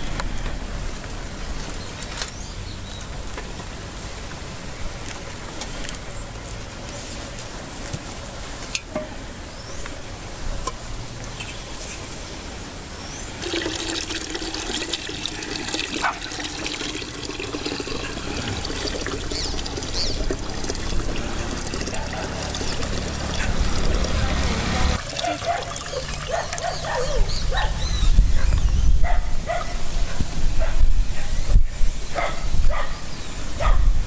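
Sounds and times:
water pouring into a metal pot: 13.4s - 26.8s.

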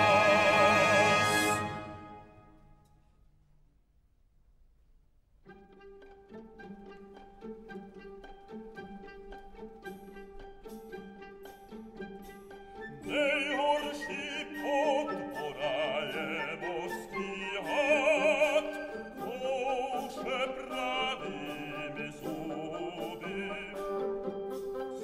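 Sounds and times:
operatic singing with vibrato: 0.0s - 2.5s, 12.9s - 25.0s
orchestra playing: 0.0s - 2.8s, 5.6s - 25.0s.

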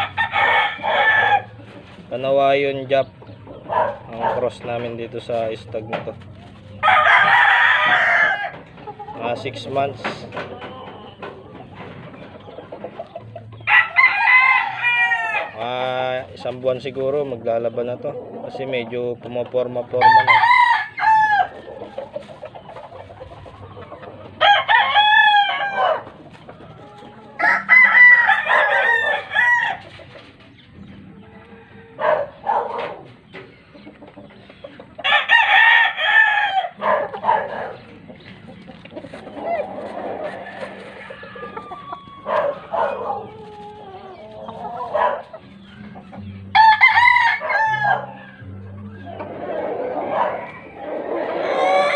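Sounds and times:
rooster crowing: 0.0s - 1.5s, 6.8s - 8.6s, 13.6s - 15.5s, 20.0s - 21.5s, 24.4s - 26.0s, 27.4s - 29.8s, 35.0s - 37.0s, 40.3s - 43.2s, 46.6s - 48.4s
roosters crowing: 0.0s - 3.0s, 3.6s - 5.6s, 6.6s - 16.5s, 19.8s - 33.6s, 34.8s - 51.9s
roosters clucking: 0.0s - 51.9s.

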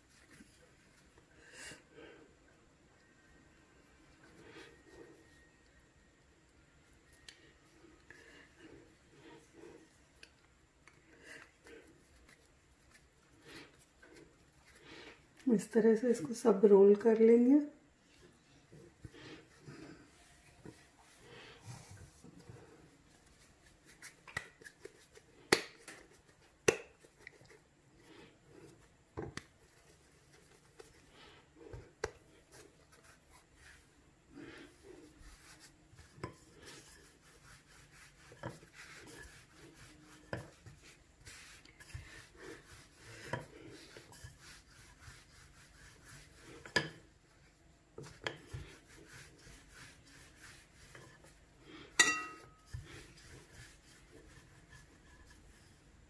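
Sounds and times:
rolling pin rolling dough: 18.3s - 56.0s.

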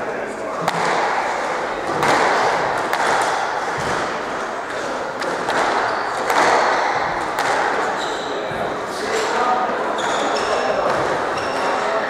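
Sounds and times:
background din in hall: 0.0s - 12.0s
squash ball hits: 0.6s - 9.2s.

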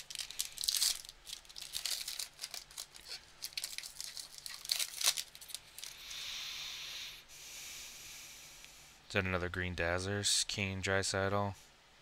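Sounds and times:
foil wrapper crinkling and tearing: 0.0s - 6.0s
soft hiss: 0.0s - 12.0s.

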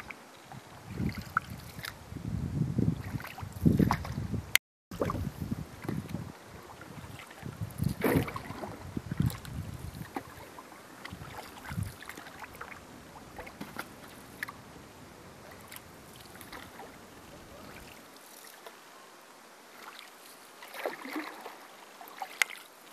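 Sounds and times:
water swishing: 0.0s - 2.1s, 2.9s - 4.3s, 4.9s - 18.8s, 19.5s - 22.9s
water lapping at hull: 0.0s - 2.2s, 2.8s - 4.3s, 4.9s - 18.8s, 19.6s - 22.9s
wind rumbling on microphone: 0.0s - 18.1s.

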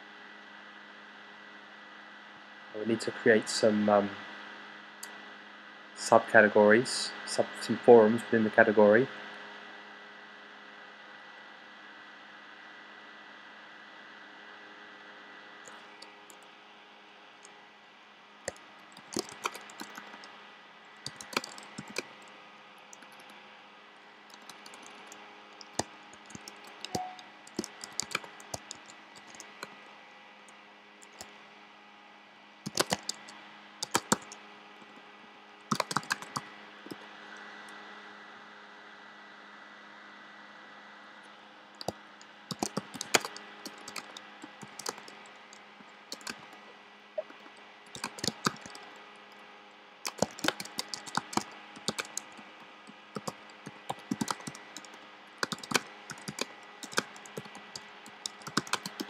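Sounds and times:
steady background hum: 0.0s - 59.0s
typing on computer keyboard: 18.5s - 20.3s, 21.0s - 22.3s, 24.3s - 29.8s, 31.0s - 31.3s, 32.7s - 34.4s, 35.7s - 37.0s, 41.8s - 46.6s, 47.9s - 49.0s, 50.0s - 59.0s.

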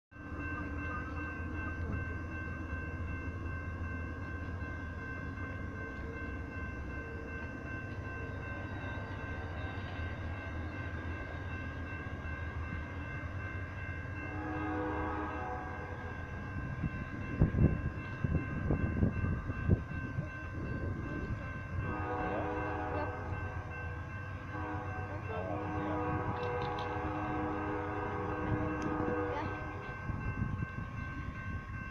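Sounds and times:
train wheels rumbling on rail: 0.2s - 31.9s
train horn: 14.2s - 16.3s, 21.7s - 30.2s.

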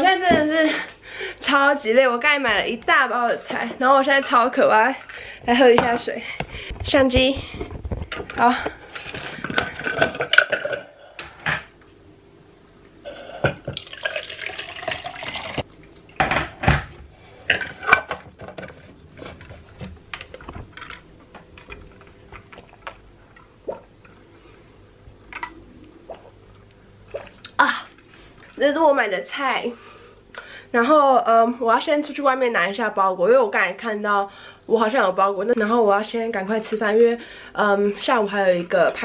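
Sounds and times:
water running into cup: 13.7s - 15.6s.

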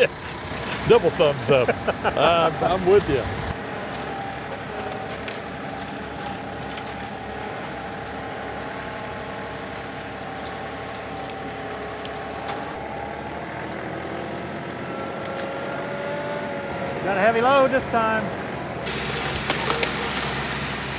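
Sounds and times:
tractor diesel engine under load: 0.0s - 20.9s.

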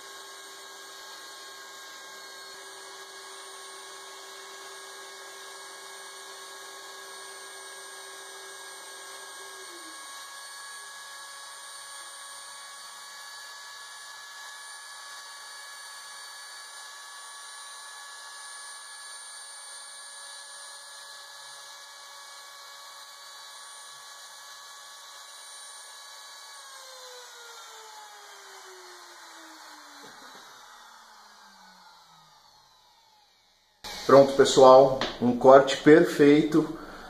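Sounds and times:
spindle motor whining: 0.0s - 37.0s.

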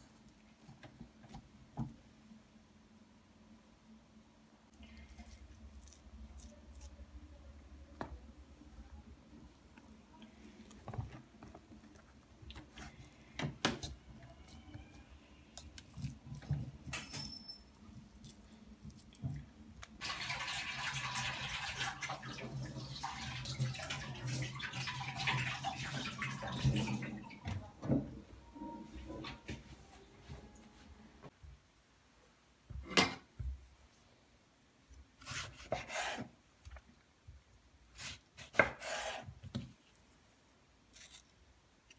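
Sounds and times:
water running: 18.9s - 27.8s.

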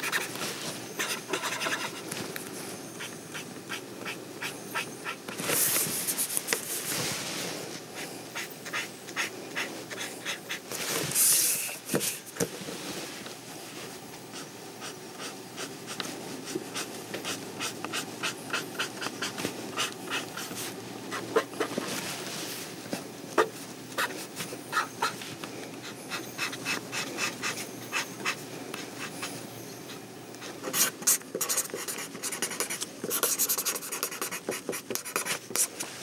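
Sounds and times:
pen scratching on paper: 0.0s - 0.3s, 1.0s - 2.0s, 3.0s - 6.6s, 8.0s - 10.6s, 14.4s - 21.7s, 23.4s - 25.2s, 25.8s - 29.3s, 30.6s - 35.8s.

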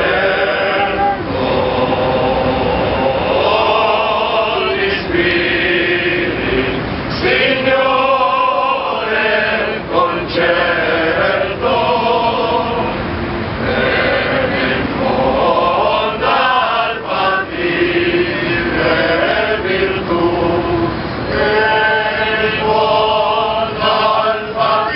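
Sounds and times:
men's choir singing unaccompanied: 0.0s - 24.9s.

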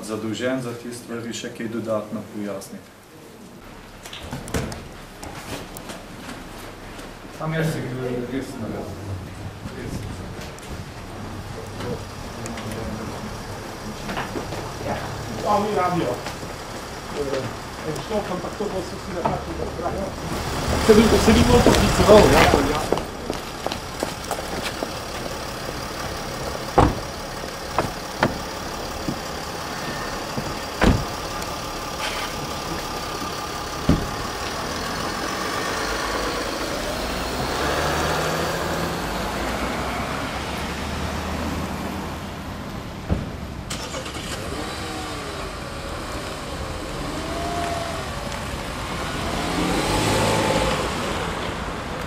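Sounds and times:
car engine running: 10.8s - 37.5s
car doors shutting: 25.9s - 32.4s, 33.8s - 34.7s.

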